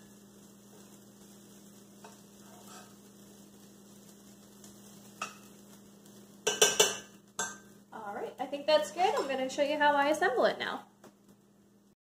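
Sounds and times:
low electrical hum: 0.0 - 12.0
vegetables sizzling in frying pan: 0.0 - 12.0
utensil scraping pan: 2.0 - 3.1
utensil clicking against pan: 6.4 - 7.6.

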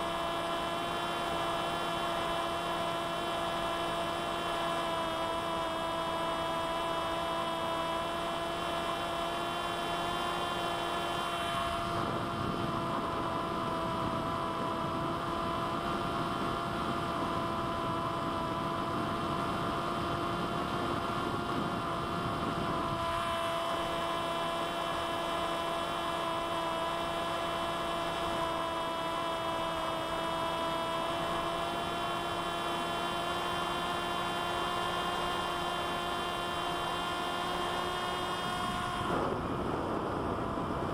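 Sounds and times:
electric motor and propeller whine: 0.0 - 40.9
wind noise: 10.8 - 32.1, 36.9 - 40.9.

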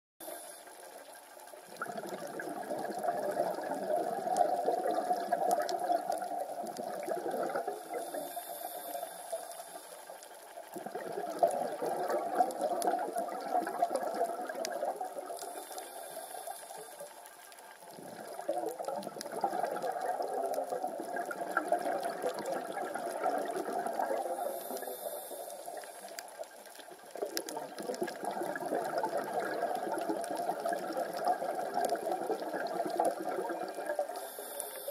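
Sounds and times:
exhaled bubbles gurgling: 0.2 - 17.2, 17.8 - 34.9
diver breathing through regulator: 7.8 - 10.1, 15.4 - 17.1, 24.2 - 26.2, 34.1 - 34.9.

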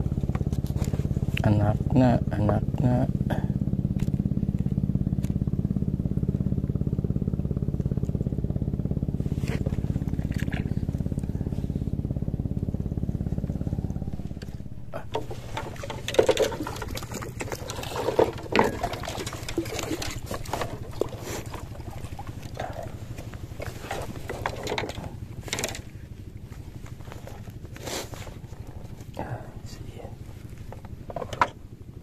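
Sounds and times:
small boat engine running: 0.0 - 32.0
knocks and clatter: 14.3 - 25.9, 30.7 - 31.6.

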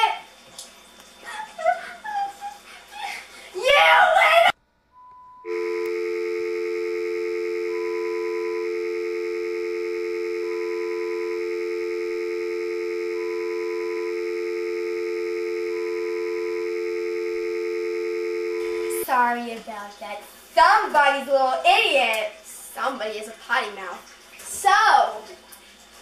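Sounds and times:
short higher beep: 5.0 - 19.0
steady low two-note tone: 5.5 - 19.0.

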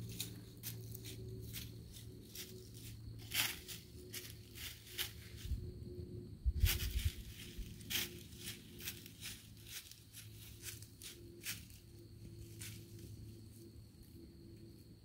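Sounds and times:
deer steps crunching dry leaves: 0.0 - 5.6, 6.6 - 13.2
low rumble: 0.0 - 9.0.

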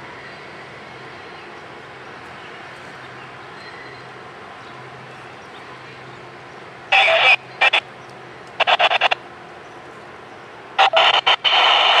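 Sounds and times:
radio static bursts: 6.9 - 7.8, 8.6 - 9.2, 10.8 - 12.0.

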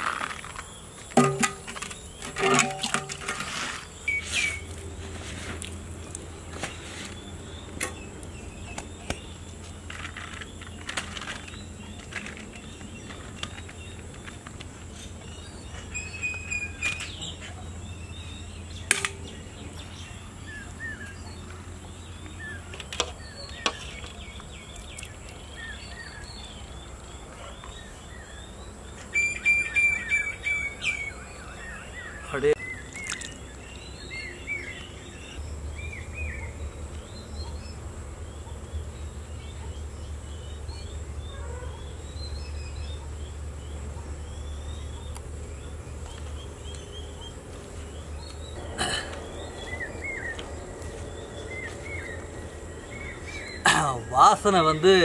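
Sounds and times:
birds chirping: 0.0 - 55.0
steel pots and ladle clinking: 1.2 - 3.5
low hum: 42.6 - 54.4.

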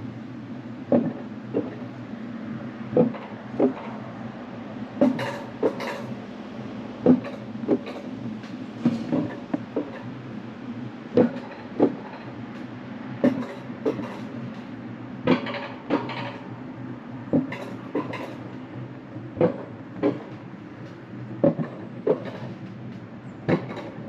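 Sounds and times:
wheels rumbling on steel rails: 0.0 - 24.0
paired clacks of lift: 0.9 - 1.9, 2.9 - 4.1, 5.0 - 6.2, 7.0 - 10.1, 11.1 - 16.5, 17.3 - 24.0.

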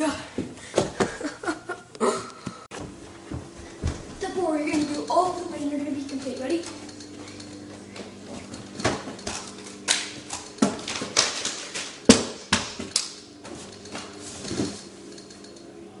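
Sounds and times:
body thumping on carpeted floor: 2.8 - 4.2.

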